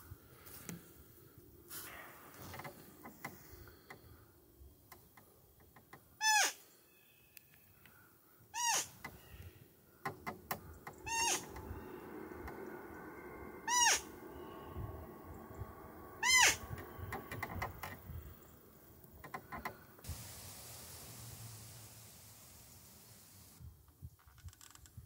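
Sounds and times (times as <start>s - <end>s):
high squeaky deer call: 6.2s - 7.5s, 8.5s - 9.4s, 10.9s - 12.0s, 13.6s - 14.3s, 16.2s - 17.0s.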